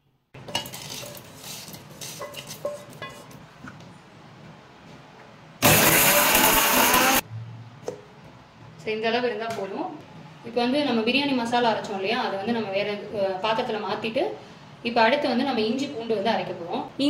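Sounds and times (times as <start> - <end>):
grinder motor running: 5.6 - 7.2.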